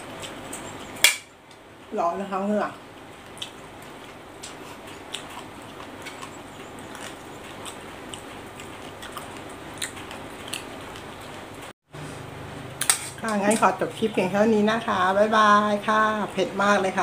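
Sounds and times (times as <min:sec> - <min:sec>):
quiet chewing: 0:02.9 - 0:11.7.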